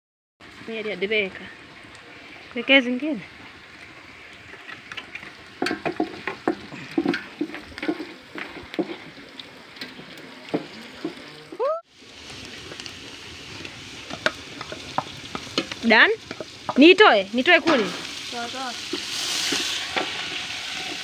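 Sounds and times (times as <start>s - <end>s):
onions sizzling in hot oil: 0.4s - 21.0s
spoon knocking and scraping pot: 4.7s - 9.1s, 14.1s - 16.9s.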